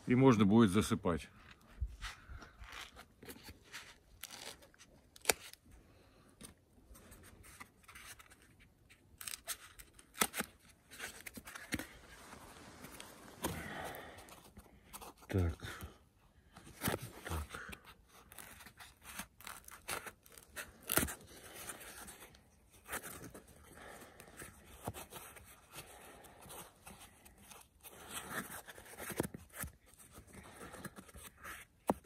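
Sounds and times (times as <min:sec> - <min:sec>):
pipe insulation rustling and scraping: 0:06.5 - 0:15.6.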